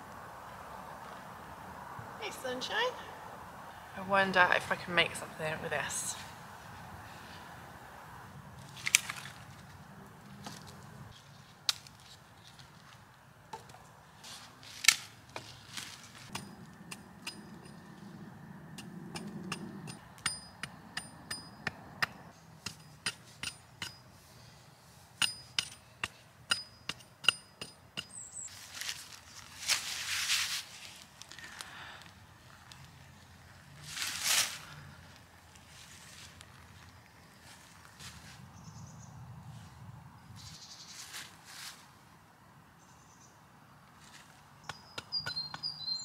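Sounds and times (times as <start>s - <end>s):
hatchet chopping wood: 25.2s - 28.2s.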